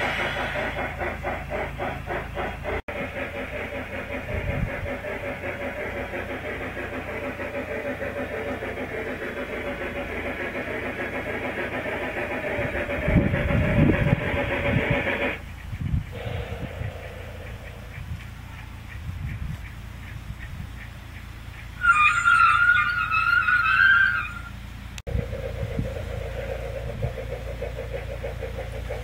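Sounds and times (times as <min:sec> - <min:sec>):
steam hiss: 0:00.0 - 0:15.5, 0:16.1 - 0:20.0
model steam train whine: 0:00.0 - 0:20.4, 0:21.0 - 0:29.0
low rumbling: 0:00.0 - 0:29.0
wheels clicking over rails: 0:00.0 - 0:29.0.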